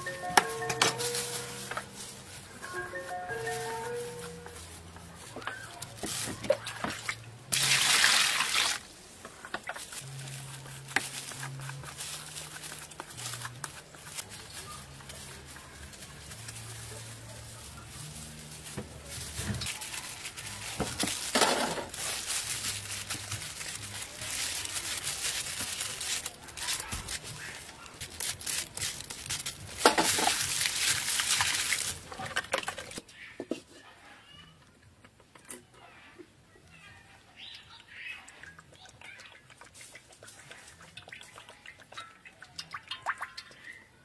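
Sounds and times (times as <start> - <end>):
water splashing in a basin: 6.4 - 10.0, 30.0 - 33.0, 38.3 - 44.0.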